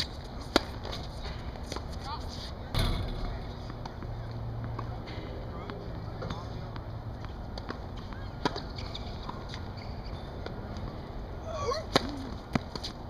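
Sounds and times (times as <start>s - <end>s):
racket striking tennis ball: 0.0s - 1.9s.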